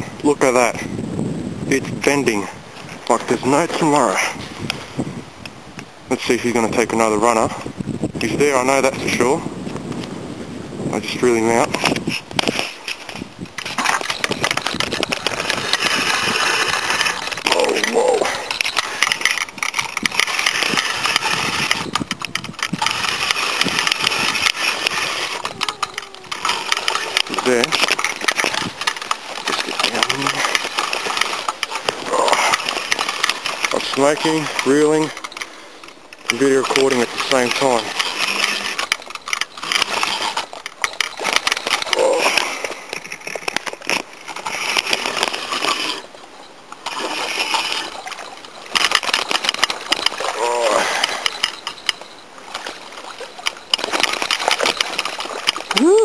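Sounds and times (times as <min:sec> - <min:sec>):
fishing reel whirring and clicking: 0:12.0 - 0:46.1, 0:46.8 - 0:56.0.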